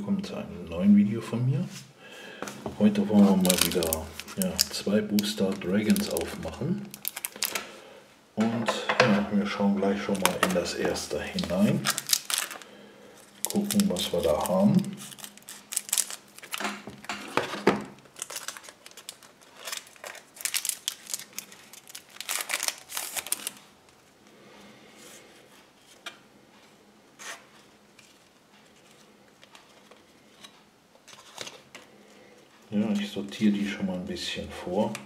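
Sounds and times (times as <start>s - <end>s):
foil wrapper crinkling: 3.1s - 7.7s, 10.0s - 24.0s
scissors cutting foil pack: 13.5s - 16.6s, 18.2s - 23.6s.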